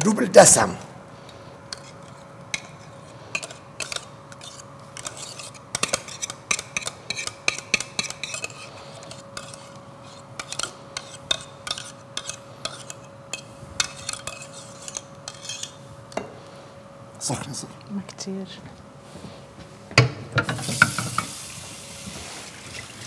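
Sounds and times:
metal spoon scraping steel bowl: 1.7s - 15.8s.

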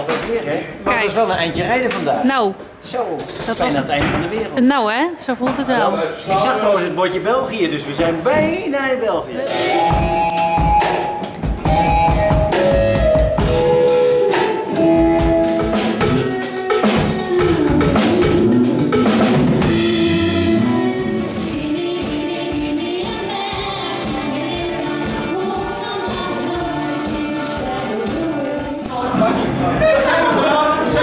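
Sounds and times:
electric guitar: 9.4s - 22.4s
drum kit: 9.4s - 31.0s
person singing: 19.7s - 31.0s.

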